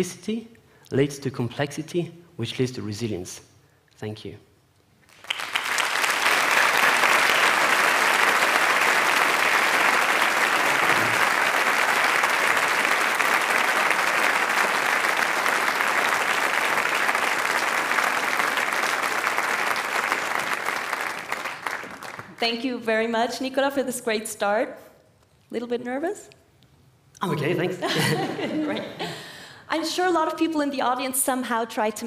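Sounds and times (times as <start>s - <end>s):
audience applauding: 5.0s - 22.4s.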